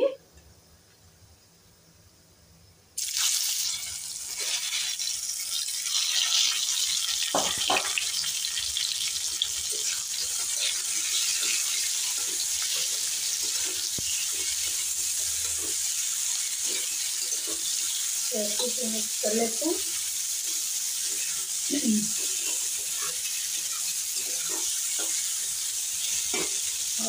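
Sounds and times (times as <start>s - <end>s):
food sizzling in hot oil: 3.0s - 27.0s
metal spatula scraping pan: 8.8s - 18.2s, 22.2s - 26.8s.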